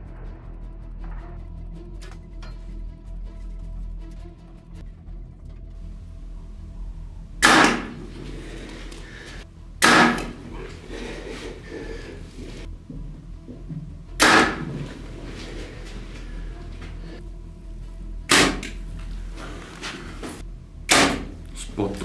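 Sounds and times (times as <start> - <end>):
arrow striking target: 7.4 - 8.3, 9.0 - 10.7, 14.2 - 15.0, 18.3 - 18.8, 20.9 - 21.4.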